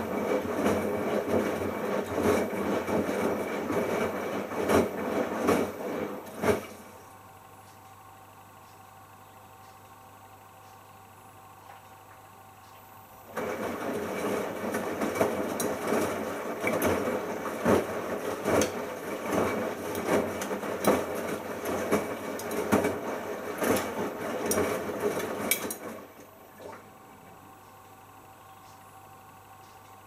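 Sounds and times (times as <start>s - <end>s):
washing machine drum tumbling: 0.0s - 7.0s, 13.3s - 27.0s.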